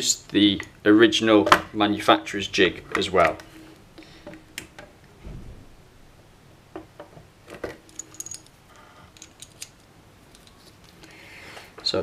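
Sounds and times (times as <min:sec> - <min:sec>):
soft thump: 0:05.2 - 0:05.8
light metallic clicks and clinks: 0:07.9 - 0:11.2.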